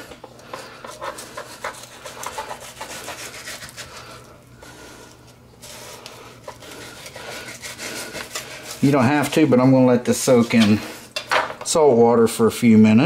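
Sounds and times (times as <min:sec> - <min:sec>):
knife scraping fish skin: 0:00.8 - 0:04.1, 0:05.6 - 0:09.3.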